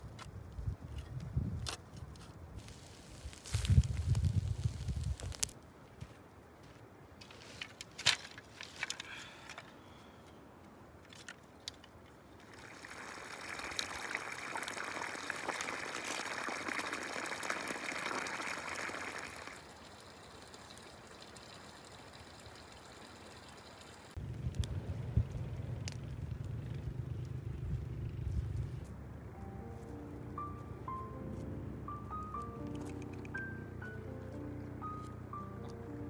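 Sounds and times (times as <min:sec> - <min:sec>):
water splashing onto grass and leaves: 0:12.4 - 0:24.2.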